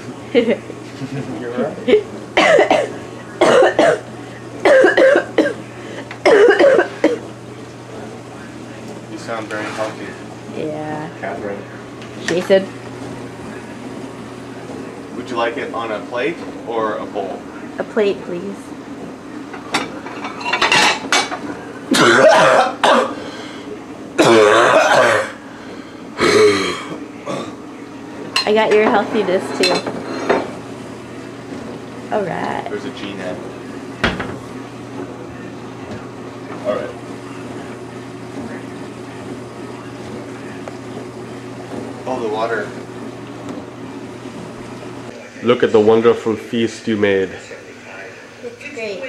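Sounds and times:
person coughing: 2.4 - 4.0, 4.6 - 5.6, 6.2 - 7.2, 21.9 - 23.2, 24.2 - 25.4, 26.2 - 27.6.

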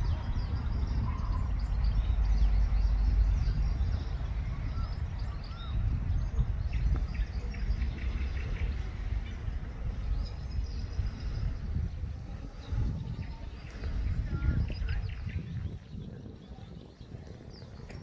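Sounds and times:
birds chirping: 0.0 - 18.0
wind buffeting microphone: 0.0 - 18.0.

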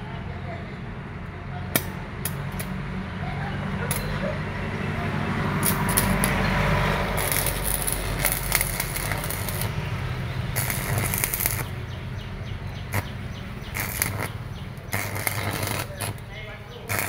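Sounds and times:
welding arc crackling: 5.5 - 17.0.

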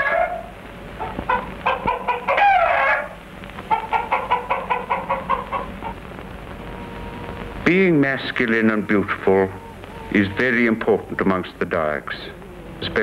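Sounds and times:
rooster clucking: 1.0 - 13.0
rooster call: 6.4 - 13.0.

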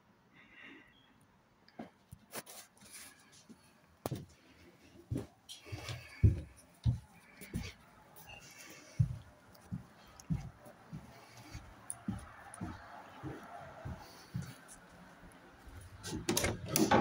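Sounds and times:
footsteps on indoor stairs: 4.0 - 4.4, 5.0 - 17.0.

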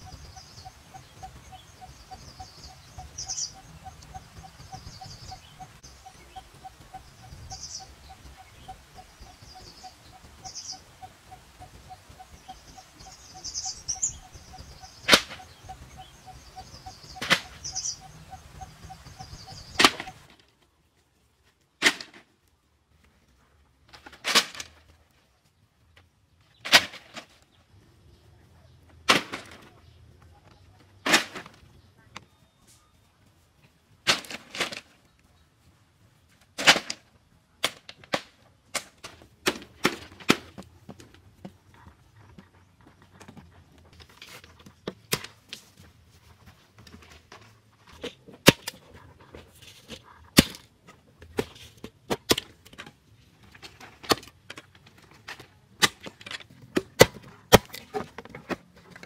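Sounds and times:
bamboo poles clattering: 21.4 - 22.4, 23.0 - 25.3, 25.9 - 27.6, 29.0 - 29.9, 31.0 - 31.7, 34.0 - 35.3, 36.3 - 59.0.

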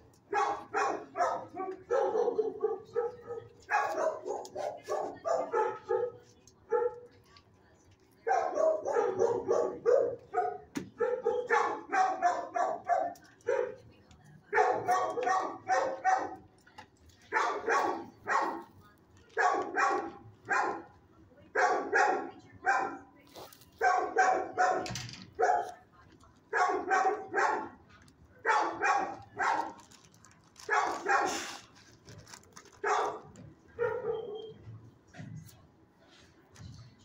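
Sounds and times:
dog barking: 0.3 - 7.1, 8.2 - 13.8, 14.5 - 16.5, 17.3 - 18.8, 19.4 - 23.1, 23.8 - 25.8, 26.5 - 27.8, 28.4 - 29.9, 30.6 - 31.6, 32.8 - 34.6.

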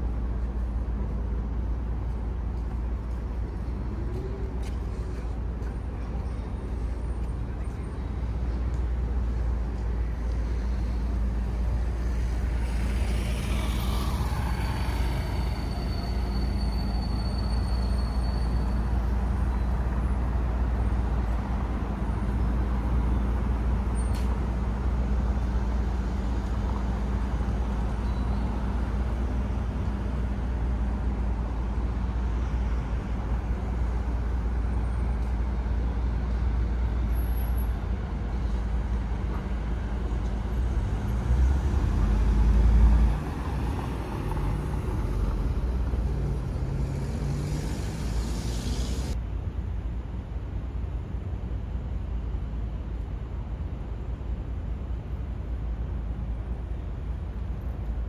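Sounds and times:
road traffic rumble: 0.0 - 58.0
vehicle passing: 11.8 - 16.3, 40.7 - 49.2.

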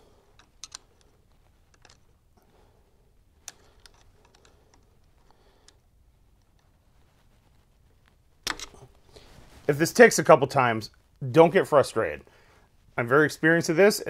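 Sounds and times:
metal clicks and scraping: 0.3 - 2.2, 3.4 - 5.8, 8.4 - 8.9.

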